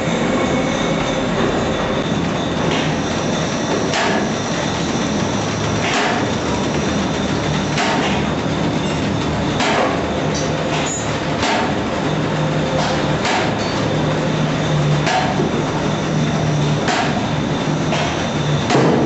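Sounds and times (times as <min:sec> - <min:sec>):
low machine hum: 0:00.0 - 0:19.0
machine mechanical clatter: 0:00.3 - 0:19.0
sharp machine knock: 0:03.6 - 0:04.4, 0:05.6 - 0:06.6, 0:07.2 - 0:08.4, 0:09.5 - 0:10.2, 0:10.8 - 0:11.8, 0:12.8 - 0:13.7, 0:15.0 - 0:15.5, 0:16.8 - 0:17.3, 0:17.9 - 0:19.0.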